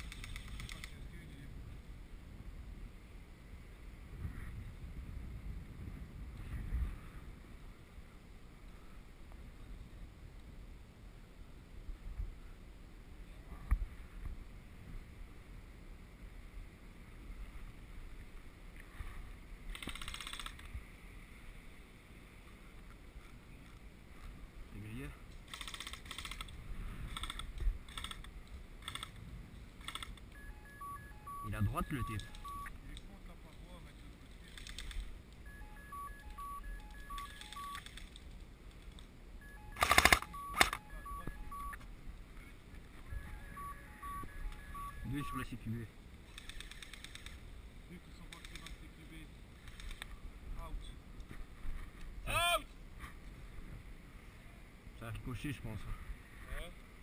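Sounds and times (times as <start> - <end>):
faint rattle of clicks: 0.0 - 1.0
wind on microphone: 0.0 - 8.2
electronic beeps at three pitches: 30.4 - 32.8, 35.4 - 37.8, 39.4 - 41.8, 43.0 - 45.5
airsoft gun rapid fire: 39.8 - 40.7.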